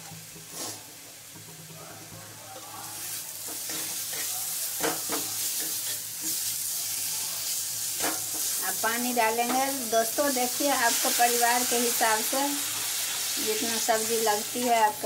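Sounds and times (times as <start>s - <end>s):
paste sizzling in oil: 0.0s - 1.3s, 2.6s - 15.0s
metal spatula scraping pan: 0.4s - 0.9s.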